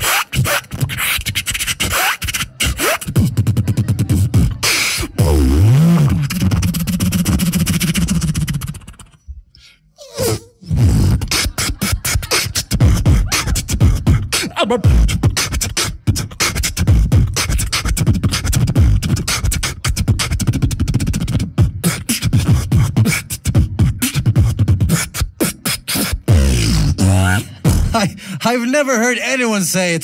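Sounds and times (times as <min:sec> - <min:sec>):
beatboxing: 0:00.0 - 0:28.4.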